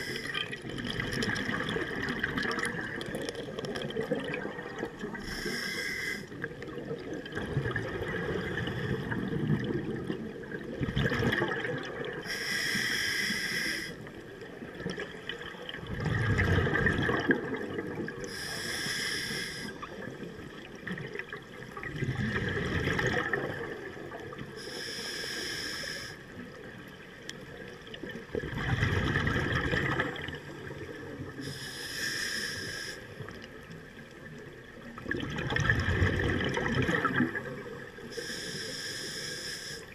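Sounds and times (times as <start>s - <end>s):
hissing regulator inhale: 0.0s - 0.4s, 5.1s - 6.5s, 12.2s - 14.1s, 18.2s - 20.0s, 24.6s - 26.3s, 31.4s - 33.4s, 38.0s - 39.9s
exhaled bubbles rushing: 0.0s - 5.2s, 6.4s - 12.3s, 14.6s - 18.3s, 19.9s - 24.4s, 27.9s - 31.4s, 34.8s - 38.0s.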